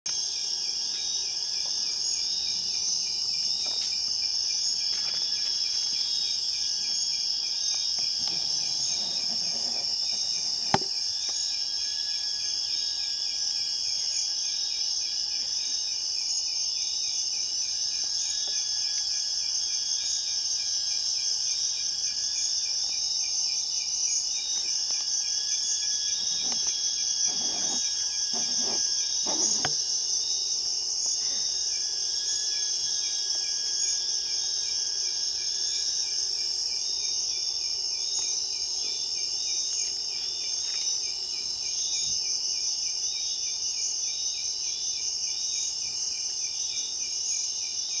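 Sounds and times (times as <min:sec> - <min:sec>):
crickets trilling: 0:00.1 - 0:48.0
pulsed insect calls: 0:00.1 - 0:48.0
thin insect tone: 0:00.1 - 0:48.0.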